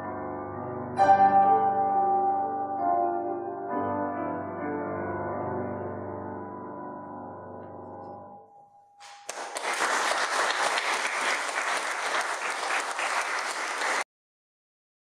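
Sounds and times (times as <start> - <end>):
audience applauding: 9.0 - 14.1.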